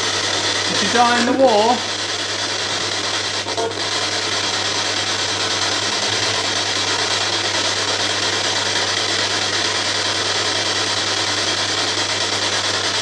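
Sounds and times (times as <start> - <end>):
radio static hiss: 0.6 - 4.2.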